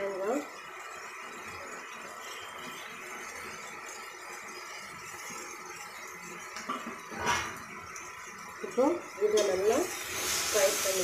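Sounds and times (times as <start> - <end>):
food hissing in a pan: 9.6 - 11.0.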